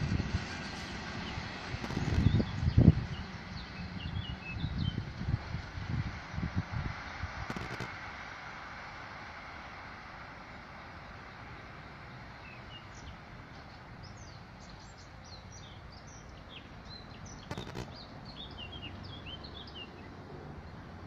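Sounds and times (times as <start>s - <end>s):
low outdoor background noise: 0.0s - 21.0s
small birds chirping: 1.8s - 5.0s, 7.5s - 7.9s, 12.0s - 20.8s
burst of clicks: 7.5s - 8.0s, 17.5s - 18.0s.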